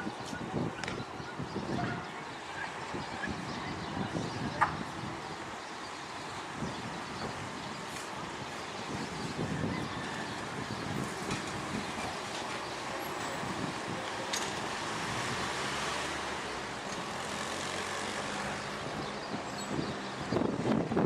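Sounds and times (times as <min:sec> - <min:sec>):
wind on microphone: 0:00.0 - 0:05.6, 0:06.4 - 0:12.4, 0:18.5 - 0:21.0
distant city traffic: 0:00.0 - 0:21.0.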